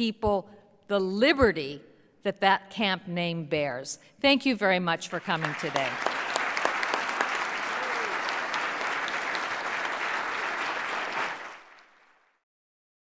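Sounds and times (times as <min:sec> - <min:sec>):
audience applauding: 0:05.1 - 0:12.4.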